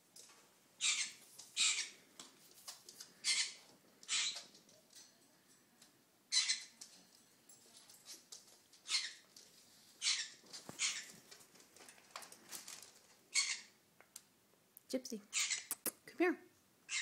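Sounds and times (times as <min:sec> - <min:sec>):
macaw raspy calls: 0:00.8 - 0:02.0, 0:03.2 - 0:04.4, 0:06.3 - 0:06.7, 0:10.0 - 0:11.1, 0:13.3 - 0:13.7.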